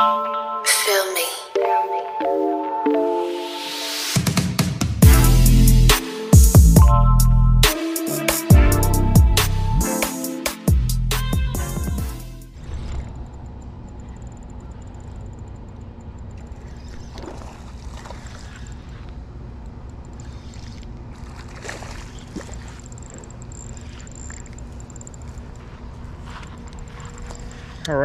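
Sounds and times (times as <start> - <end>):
fishing reel clicks and rattles: 19.6 - 20.9, 22.1 - 25.7.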